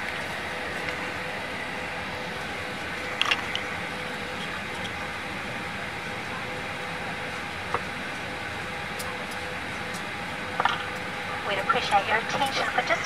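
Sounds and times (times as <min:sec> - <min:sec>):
faint steady hum: 0:00.0 - 0:13.0
ventilation air rushing: 0:00.0 - 0:13.0.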